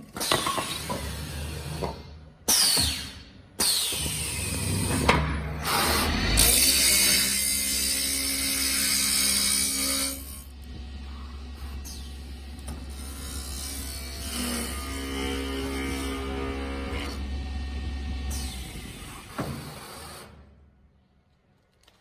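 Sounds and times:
lathe knife cutting wood: 5.7s - 20.2s
wood lathe running: 6.2s - 20.2s.

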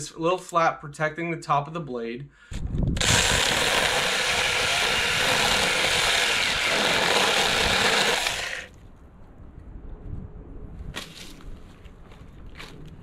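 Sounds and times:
electric chainsaw cutting branch: 3.0s - 8.7s.

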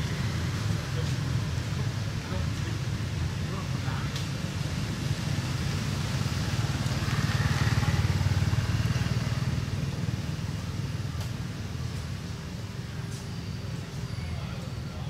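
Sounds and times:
vehicle engine passing by: 4.8s - 10.7s.

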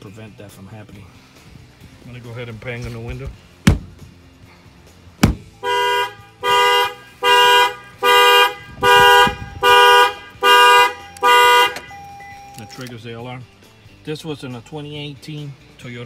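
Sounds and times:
hand banging on car window: 2.9s - 4.1s, 5.2s - 5.5s
car alarm horn honking: 5.3s - 12.9s.

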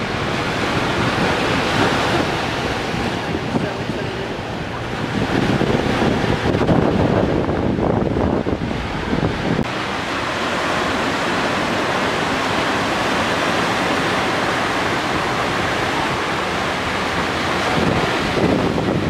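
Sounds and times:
ocean surf breaking: 0.0s - 19.0s
wind buffeting microphone: 0.0s - 19.0s.

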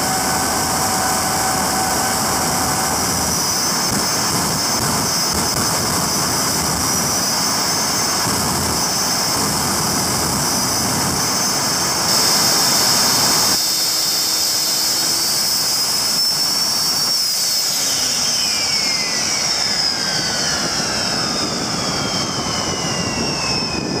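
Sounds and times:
turbojet engine roaring and whining: 0.0s - 24.0s.

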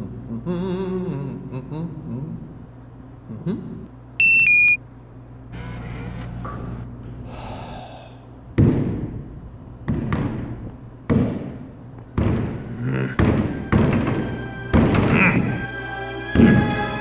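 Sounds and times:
vending machine keypad beeps: 4.2s - 4.8s
hand banging glass front: 13.2s - 15.2s.

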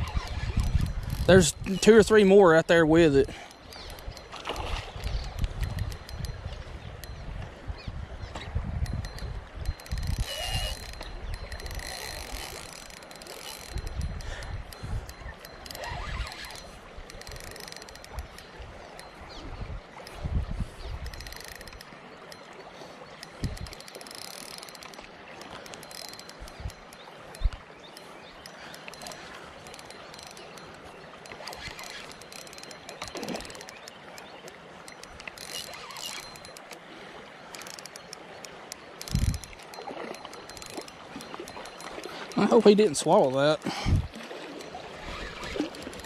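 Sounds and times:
spinning reel clicking: 0.0s - 2.2s, 3.2s - 4.3s, 5.0s - 7.2s, 8.8s - 19.2s, 21.0s - 21.9s, 23.2s - 34.3s, 34.9s - 36.8s, 37.6s - 42.0s, 44.6s - 46.0s
creek water rushing: 21.2s - 46.0s.

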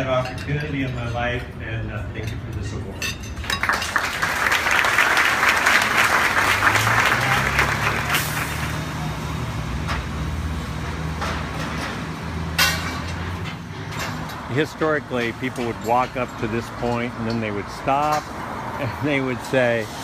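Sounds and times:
street traffic engines droning: 0.0s - 20.0s
applause: 3.4s - 8.9s.

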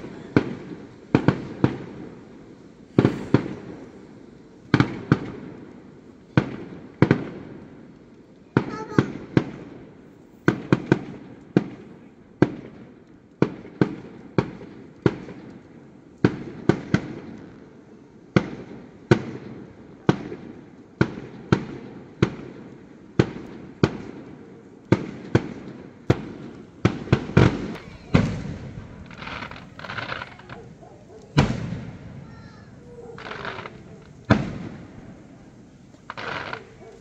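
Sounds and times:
fireworks bursting: 0.0s - 37.0s.

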